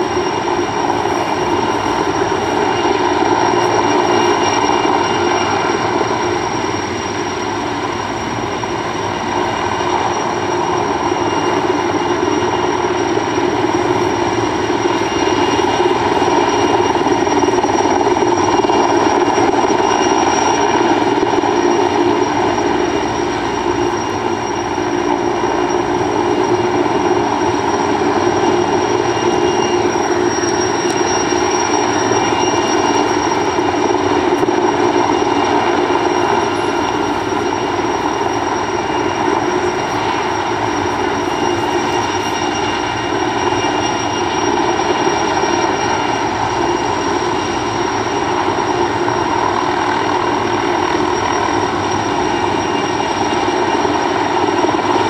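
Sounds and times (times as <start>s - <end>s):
helicopter rotors droning: 0.0s - 55.0s
high turbine whine: 0.0s - 55.0s.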